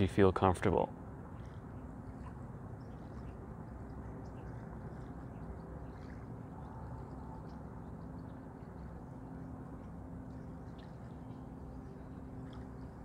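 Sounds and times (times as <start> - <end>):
steady low hum: 0.0 - 13.0
faint bird chirps: 2.7 - 9.6.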